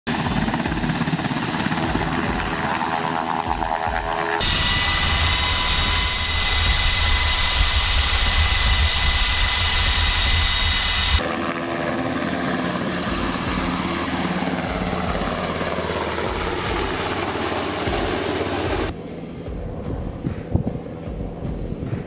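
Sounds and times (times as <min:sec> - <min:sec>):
helicopter rotor beating: 0:00.1 - 0:22.0
high turbine whine: 0:00.1 - 0:22.0
deep constant drone: 0:01.8 - 0:11.3, 0:12.8 - 0:22.0.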